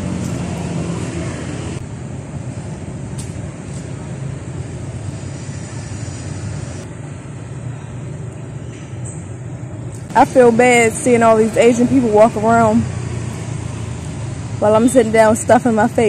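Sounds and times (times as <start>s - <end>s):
vehicle engine droning: 0.0s - 8.6s, 9.3s - 16.0s
road traffic passing: 0.0s - 16.0s
high hiss: 2.4s - 6.9s.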